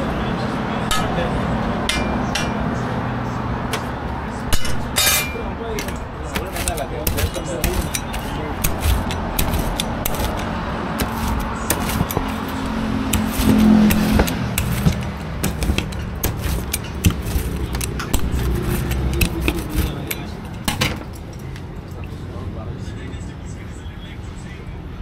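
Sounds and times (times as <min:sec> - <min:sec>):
pizza cutter clicking and scraping: 0:05.0 - 0:20.9
vehicle droning past: 0:08.5 - 0:16.2.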